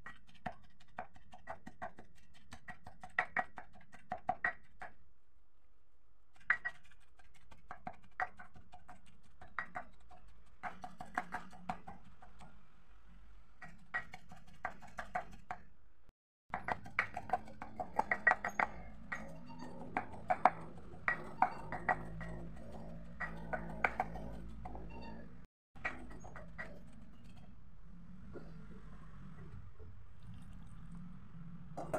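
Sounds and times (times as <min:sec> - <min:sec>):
stone pestle pounding in mortar: 0:07.5 - 0:12.4, 0:16.5 - 0:19.3.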